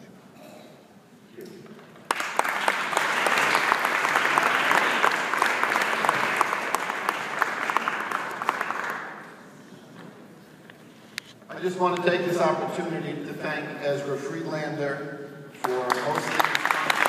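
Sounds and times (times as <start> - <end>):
audience applauding: 2.0 - 9.4, 15.6 - 17.0.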